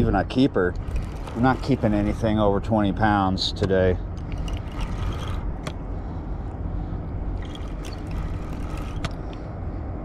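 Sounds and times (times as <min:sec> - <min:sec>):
fishing reel clicks: 0:07.4 - 0:09.2.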